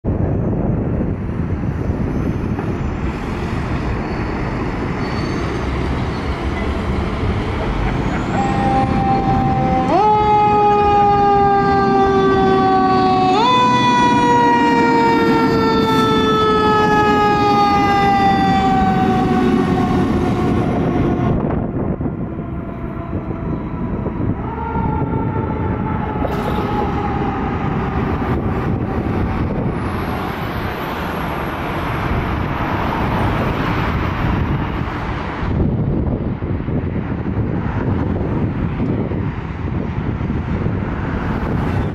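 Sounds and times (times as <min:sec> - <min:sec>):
street noise: 0:00.0 - 0:41.9
fire engine siren wailing: 0:05.6 - 0:36.3.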